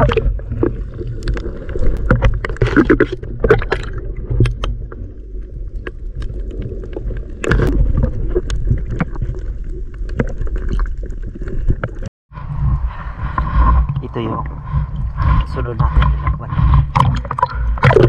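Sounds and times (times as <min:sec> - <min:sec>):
sharp clicks and crackles: 0:00.0 - 0:12.1
underwater rumble of moving water: 0:00.0 - 0:18.0.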